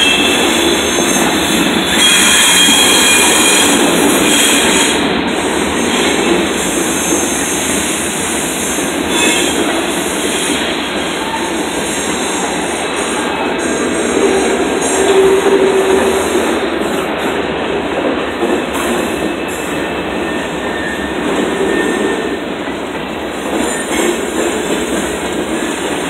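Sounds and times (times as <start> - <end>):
high wheel squeal: 0.0 - 5.1, 5.7 - 16.4, 19.0 - 22.4
freight train wheels rumbling: 0.0 - 26.0.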